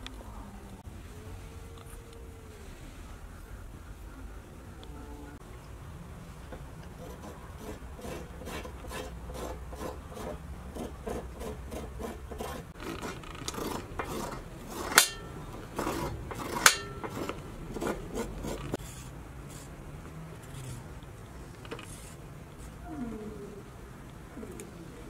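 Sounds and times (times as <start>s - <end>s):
knife scraping carrots: 7.0s - 19.8s
knife clinking on metal tray: 14.9s - 15.5s, 16.5s - 17.3s.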